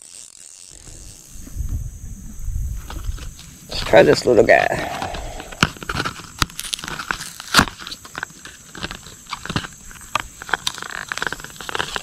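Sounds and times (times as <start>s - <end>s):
plastic blister pack crinkling: 5.0s - 12.0s.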